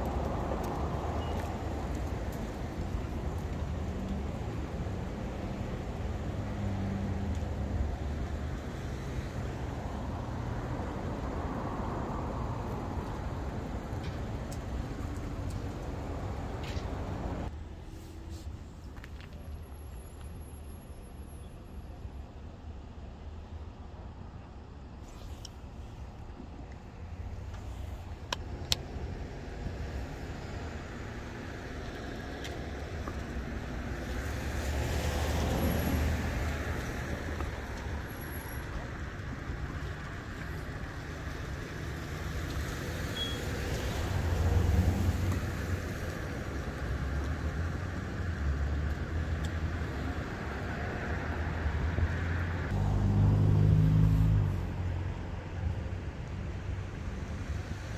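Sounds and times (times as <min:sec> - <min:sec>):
traffic rumble: 0:00.0 - 0:57.9
wind: 0:00.0 - 0:57.9
vehicle approaching: 0:44.0 - 0:56.0.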